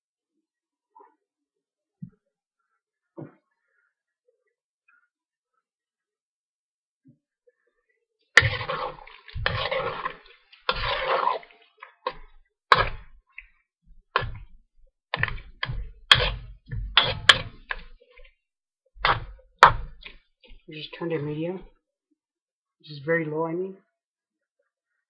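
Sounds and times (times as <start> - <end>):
metal spoon scraping wok: 8.4 - 13.0, 15.2 - 18.0.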